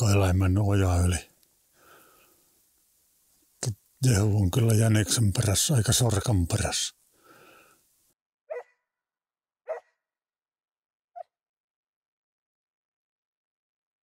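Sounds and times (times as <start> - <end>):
distant dog barking: 8.5 - 8.7, 9.7 - 9.9.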